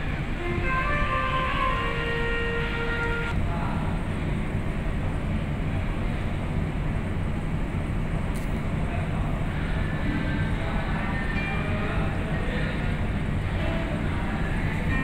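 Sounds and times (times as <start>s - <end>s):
ferry engines rumbling: 0.0s - 15.0s
wind: 0.0s - 15.0s
music-like tones: 0.3s - 3.4s, 13.5s - 15.0s.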